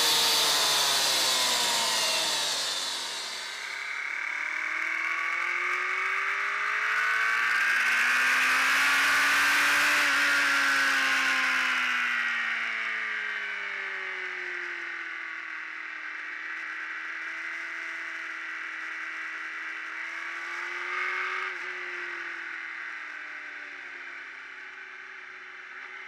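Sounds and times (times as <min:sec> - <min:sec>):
motorcycle engine revving: 0:00.0 - 0:12.4, 0:18.8 - 0:22.4.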